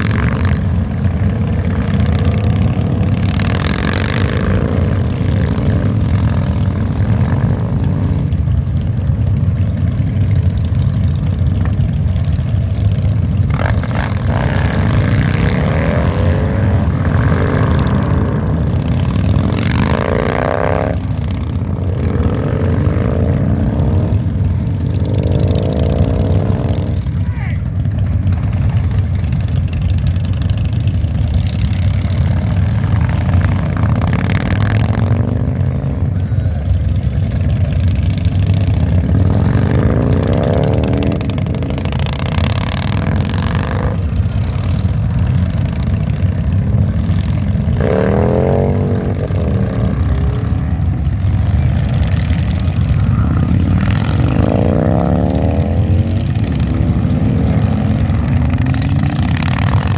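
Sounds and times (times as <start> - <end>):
motorcycles rumbling: 0.0 - 59.9
motorcycle engine revving away: 12.0 - 27.2, 28.5 - 36.2, 37.0 - 59.9.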